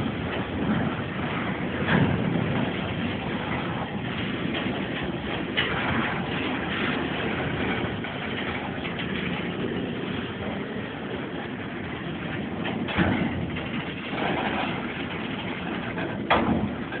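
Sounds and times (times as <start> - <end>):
freight train rumbling: 0.0 - 17.0
loud metal clank: 12.6 - 17.0.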